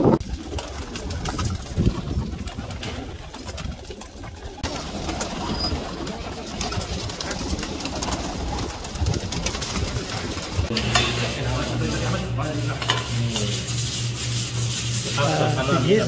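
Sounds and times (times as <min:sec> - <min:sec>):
pigeons cooing: 0:00.0 - 0:10.7
steady low hum: 0:04.6 - 0:16.0.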